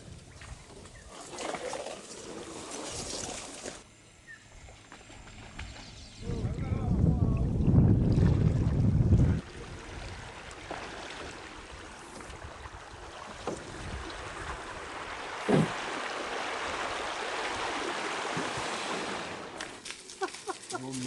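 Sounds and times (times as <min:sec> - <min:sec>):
canoe gliding through water: 0:00.0 - 0:21.0
reeds brushing a hull: 0:00.1 - 0:03.8, 0:09.3 - 0:21.0
short thud: 0:15.4 - 0:15.8.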